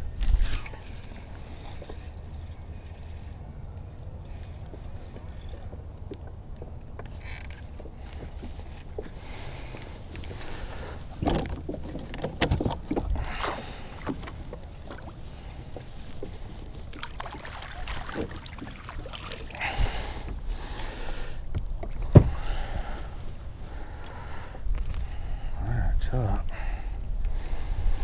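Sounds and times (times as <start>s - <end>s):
water sloshing: 0.3s - 25.1s
thumps on plastic boat hull: 22.1s - 22.4s.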